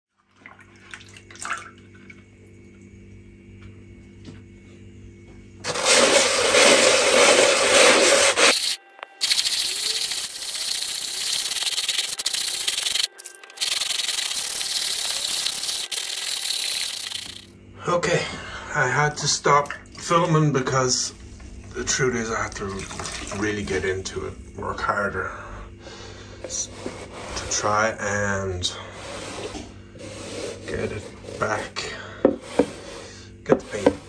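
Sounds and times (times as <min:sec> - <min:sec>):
sandpaper rasping on canvas: 0:05.7 - 0:16.7, 0:29.0 - 0:31.8
low hum: 0:08.5 - 0:28.0.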